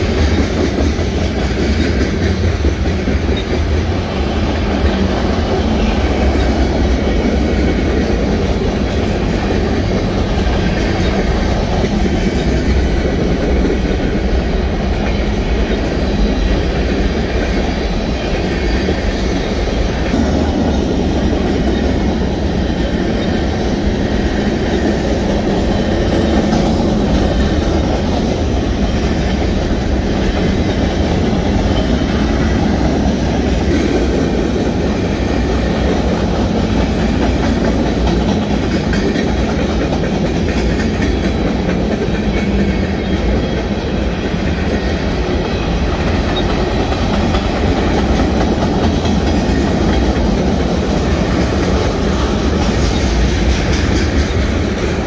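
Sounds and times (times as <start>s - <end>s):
train wheels clacking on rails: 0.0s - 55.0s.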